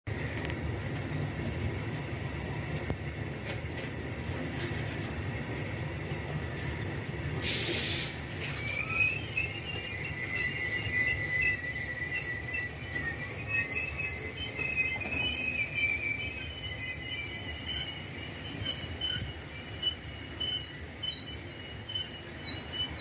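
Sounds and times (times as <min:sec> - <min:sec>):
train wheels rumbling on rail: 0:00.1 - 0:23.0
brief hiss: 0:07.4 - 0:08.3
high wheel squeal: 0:07.4 - 0:23.0.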